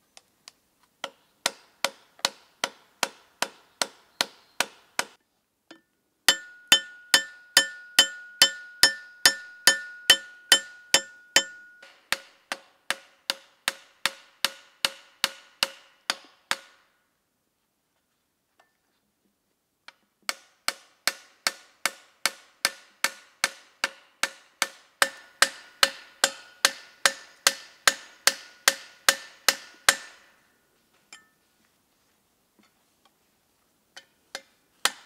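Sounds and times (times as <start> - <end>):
hammer striking metal cleaver: 4.6 - 16.8, 20.3 - 30.4
ringing metal tone: 6.3 - 12.1.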